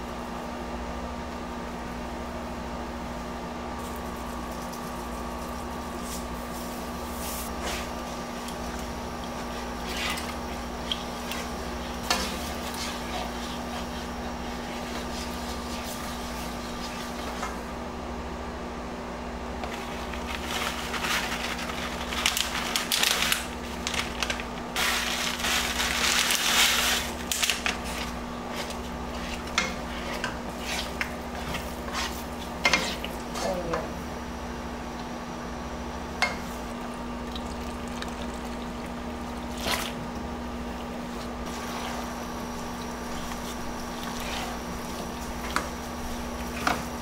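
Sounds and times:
steady hum: 0:00.0 - 0:47.0
spoon stirring and scraping saucepan: 0:06.0 - 0:17.6, 0:24.8 - 0:33.9, 0:40.9 - 0:47.0
bag rustling: 0:19.8 - 0:29.5.

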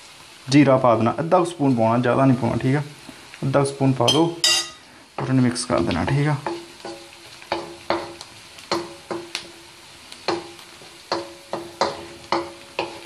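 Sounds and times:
onions sizzling: 0:00.0 - 0:13.0
wooden spatula knocking on wok: 0:06.0 - 0:09.4, 0:10.3 - 0:13.0.

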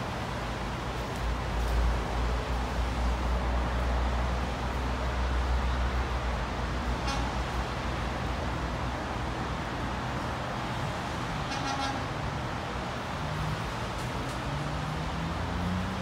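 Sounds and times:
distant freight train rumble: 0:00.0 - 0:14.5
road traffic: 0:00.0 - 0:16.0
faint train horn toot: 0:06.9 - 0:07.6, 0:11.4 - 0:12.2.

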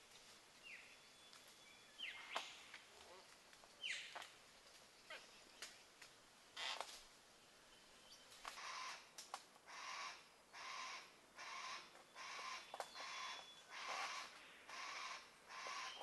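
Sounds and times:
cockatoos harsh rasping calls: 0:08.5 - 0:09.0, 0:09.7 - 0:16.0.

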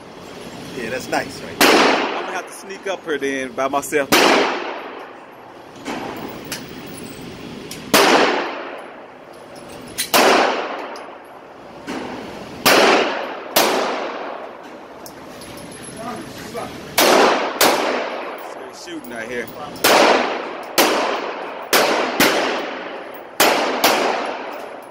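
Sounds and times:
handgun shots echoing indoors: 0:17.0 - 0:18.3, 0:19.8 - 0:24.7.

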